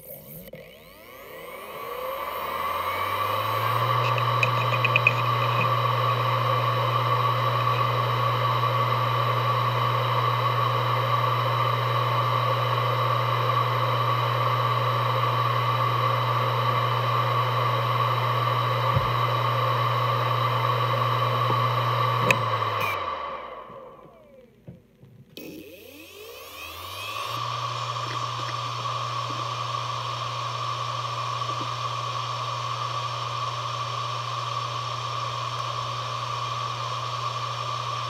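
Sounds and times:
hard drive spinning whine: 0.0 - 38.0
hard drive head clicks: 3.9 - 5.8.

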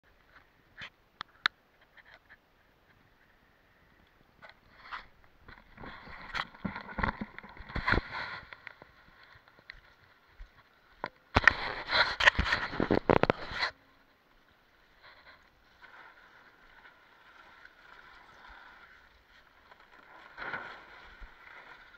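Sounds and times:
camera handling rubbing and knocks: 11.4 - 13.8.

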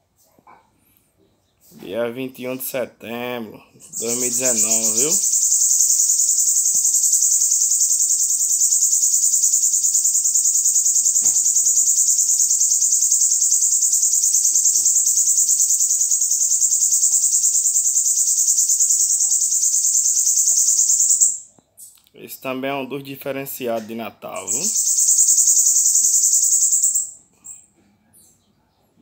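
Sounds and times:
bird singing a high trill: 3.8 - 21.5, 24.3 - 27.6.

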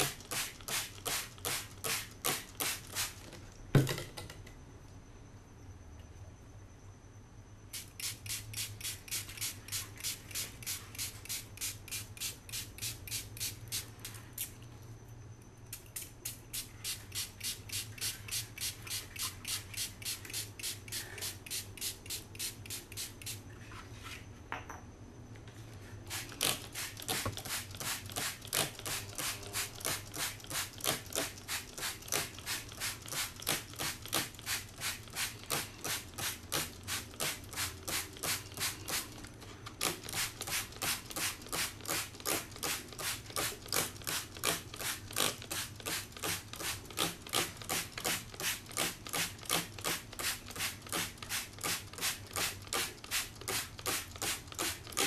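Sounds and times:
trigger spray bottle hissing: 7.8 - 13.8, 26.1 - 39.2.

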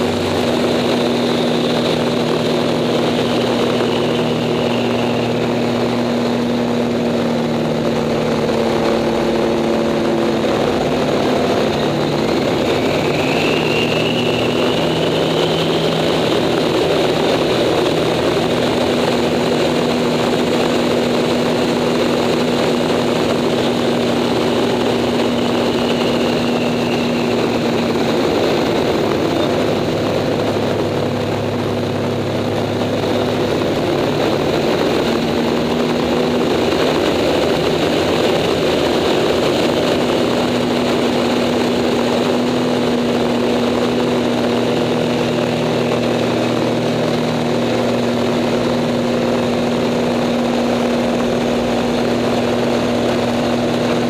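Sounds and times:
plane engine and propeller: 0.0 - 54.0
wind rush: 0.0 - 54.0
thin whistle: 12.4 - 16.6.

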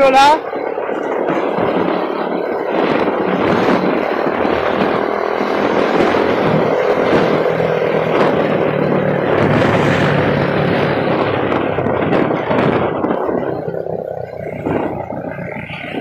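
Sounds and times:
vehicle engine at full throttle: 0.0 - 16.0
wind and road noise: 0.0 - 16.0.

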